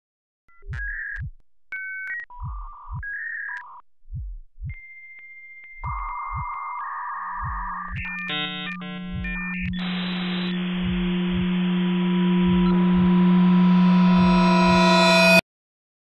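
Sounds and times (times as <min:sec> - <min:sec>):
heartbeat thumps: 0:00.5 - 0:01.4, 0:02.3 - 0:03.3, 0:04.0 - 0:05.0, 0:05.8 - 0:14.9
synthesizer tones and beeps: 0:04.8 - 0:15.4.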